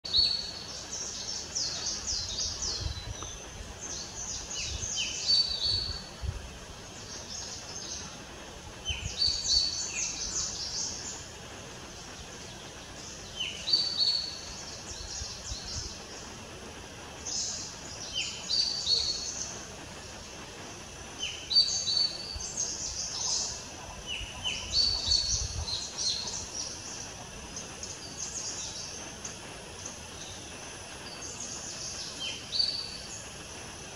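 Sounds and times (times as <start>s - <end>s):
birds chirping: 0.0s - 6.2s, 17.2s - 33.5s.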